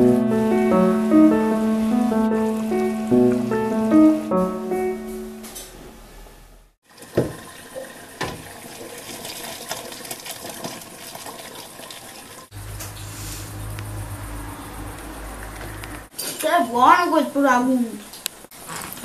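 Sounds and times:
music notes: 0.0 - 6.0
water pouring into steel sink: 6.8 - 12.5
pot knocking on sink: 7.1 - 7.5, 8.2 - 8.5.

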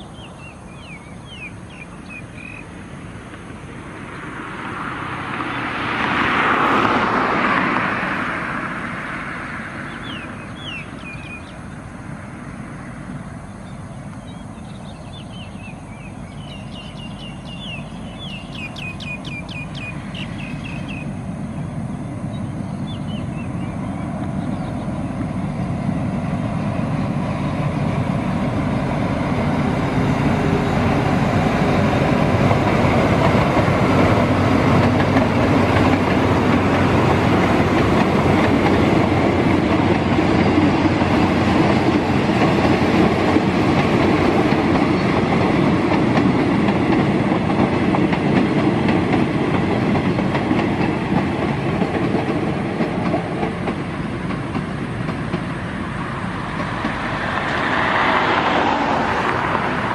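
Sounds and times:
small birds chirping: 0.0 - 2.8, 9.9 - 11.9, 13.1 - 29.5
diesel locomotive rumbling: 0.0 - 59.9
road vehicle passing: 0.0 - 59.9.

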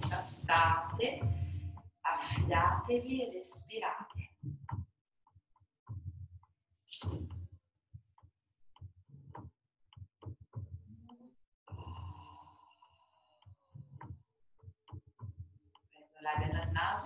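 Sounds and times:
woman breathing: 11.7 - 13.5.

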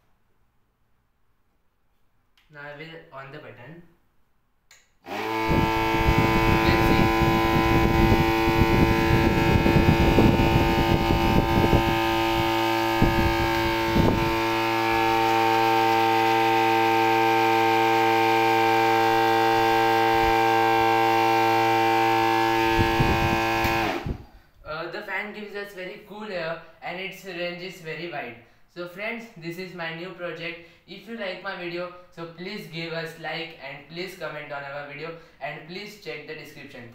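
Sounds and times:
electric motor fan humming: 5.0 - 24.5.

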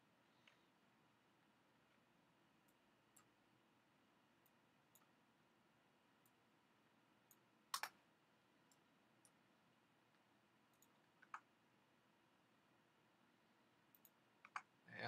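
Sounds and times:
computer mouse clicks: 2.6 - 3.4, 4.4 - 5.1, 7.3 - 8.0, 10.1 - 11.5, 13.9 - 14.7.

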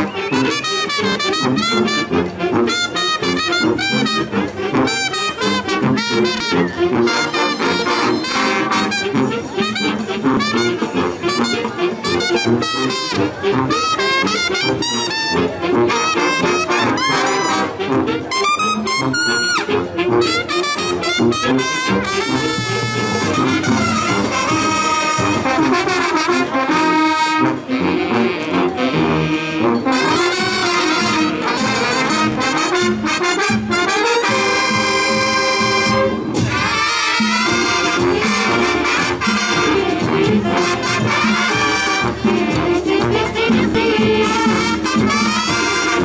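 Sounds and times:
marching band playing: 0.0 - 46.0
drums: 22.2 - 26.1, 34.2 - 46.0.

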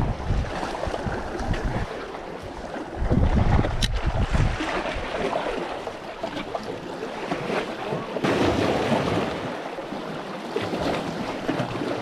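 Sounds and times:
wind buffeting microphone: 0.0 - 5.7
waves splashing on rocks: 3.1 - 12.0.

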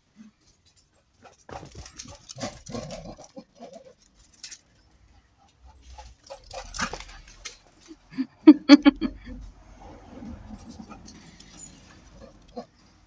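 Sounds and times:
dog whining and whimpering: 10.6 - 12.7.

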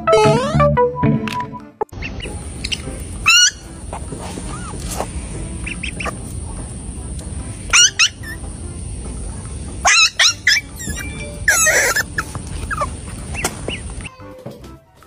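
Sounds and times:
squeaky animal calls: 2.0 - 3.8, 4.4 - 4.9, 7.7 - 8.4, 9.8 - 14.1.

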